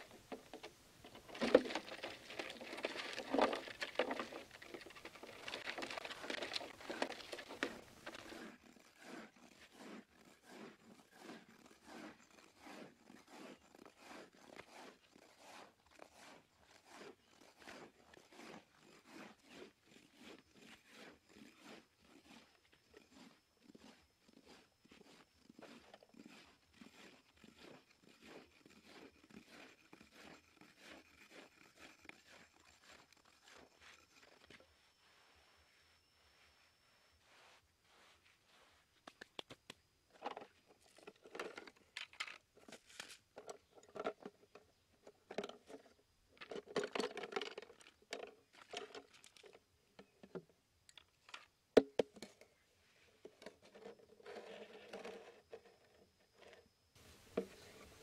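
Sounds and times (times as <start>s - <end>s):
dense crunching and clattering: 0.0s - 8.4s
hand hoe scraping dry soil: 0.0s - 50.4s, 51.2s - 58.0s.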